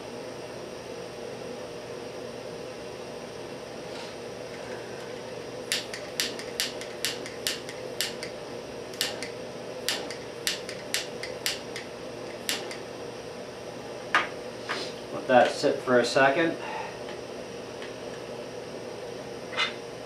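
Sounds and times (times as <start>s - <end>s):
steady background hum: 0.0s - 20.0s
small hand tools clicking: 5.7s - 8.3s, 9.0s - 9.3s, 9.9s - 11.9s.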